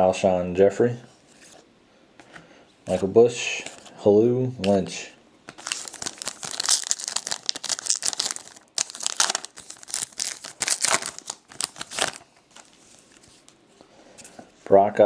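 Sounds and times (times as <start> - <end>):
wrapper tearing and crinkling: 5.5 - 13.2.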